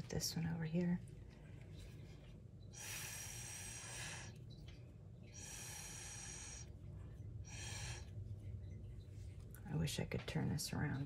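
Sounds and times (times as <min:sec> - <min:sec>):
breathy blowing through straw: 0:02.7 - 0:04.4, 0:07.4 - 0:08.2.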